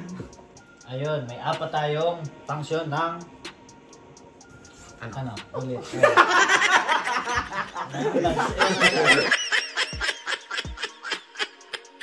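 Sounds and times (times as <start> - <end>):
music with thudding beat: 0.0 - 6.2, 7.0 - 9.2
people laughing: 5.8 - 12.0.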